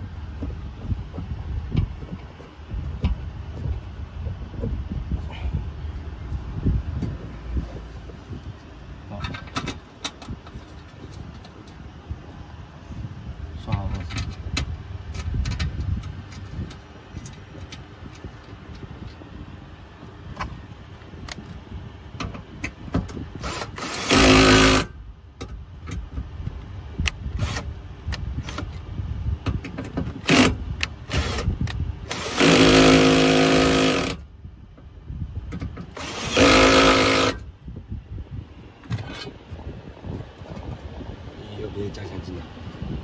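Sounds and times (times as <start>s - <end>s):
drill motor whine: 23.5s - 24.9s, 36.0s - 37.4s.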